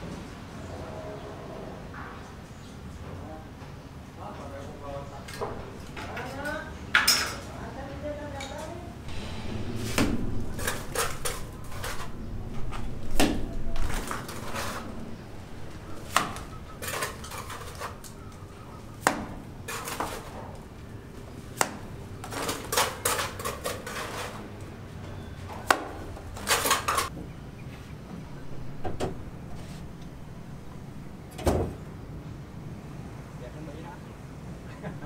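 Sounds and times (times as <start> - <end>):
trowel clinking and scraping: 15.9 - 20.4, 22.2 - 24.5.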